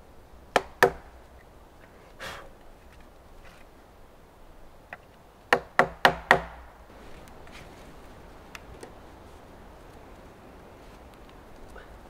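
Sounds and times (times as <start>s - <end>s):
footsteps on forest ground: 6.9s - 11.8s.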